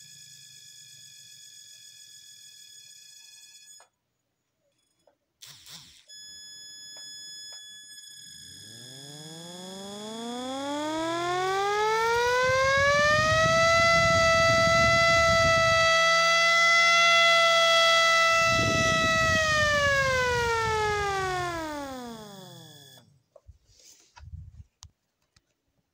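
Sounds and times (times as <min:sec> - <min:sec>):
electric motor siren wailing: 0:06.9 - 0:23.0.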